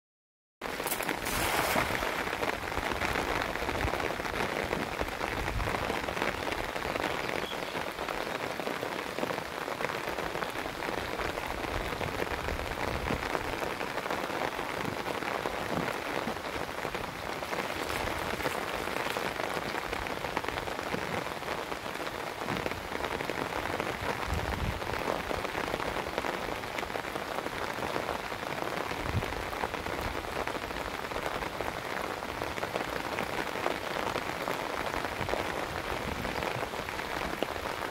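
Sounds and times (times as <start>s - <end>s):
rain falling on water: 0.6s - 37.9s.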